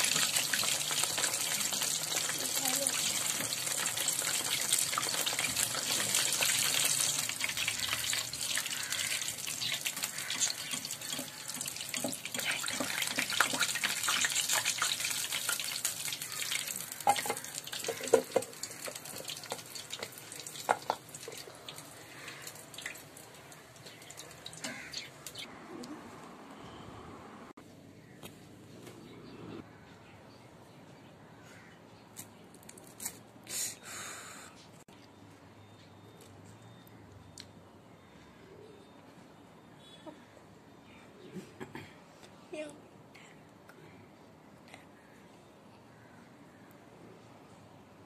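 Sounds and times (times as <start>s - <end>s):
food sizzling in hot oil: 0.0s - 21.9s.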